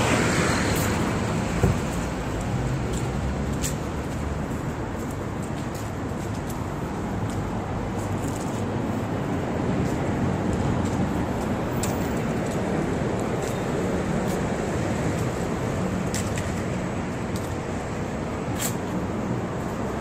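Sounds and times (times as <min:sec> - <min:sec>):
road traffic rumble: 0:00.0 - 0:20.0.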